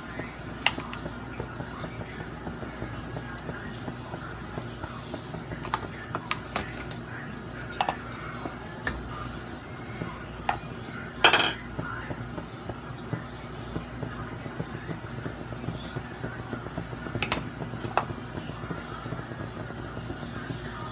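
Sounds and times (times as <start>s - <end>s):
utensil clatter: 10.4s - 11.7s, 17.1s - 18.8s
utensils clinking on metal wok: 11.3s - 11.6s.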